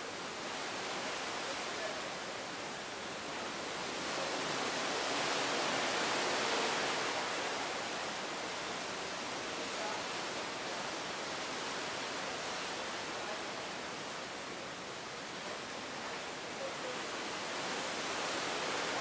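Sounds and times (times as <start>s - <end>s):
sea water rushing along hull: 0.0s - 19.0s.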